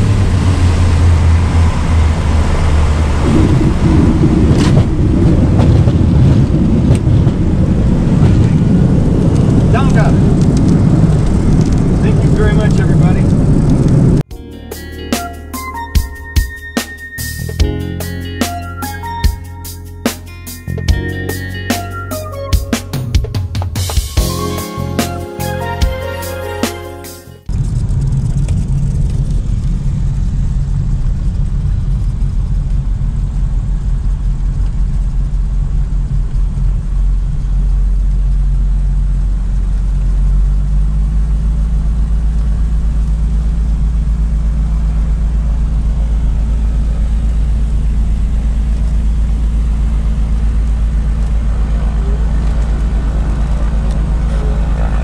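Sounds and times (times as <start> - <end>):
twin piston engines running: 8.6 - 14.2, 42.4 - 55.0.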